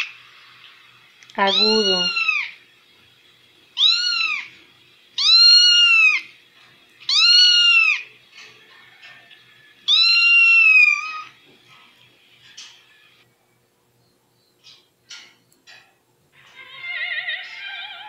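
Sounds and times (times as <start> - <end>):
kitten meowing from phone: 1.4 - 2.5, 3.8 - 4.5, 5.2 - 6.3, 7.1 - 8.0, 9.9 - 11.3.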